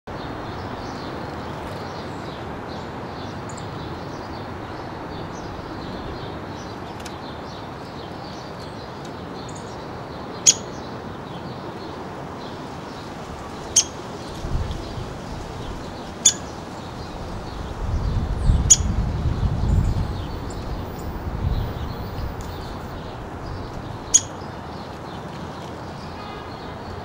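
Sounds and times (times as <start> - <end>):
woodpecker high peeps: 10.4 - 10.8, 13.7 - 14.0, 16.2 - 16.6, 18.6 - 19.0, 24.0 - 24.4.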